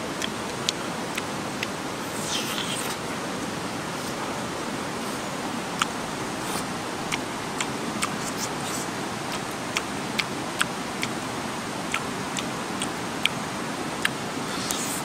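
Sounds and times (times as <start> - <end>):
river water rushing: 0.0 - 15.0
person chewing: 2.0 - 3.0, 5.0 - 9.4, 14.0 - 15.0.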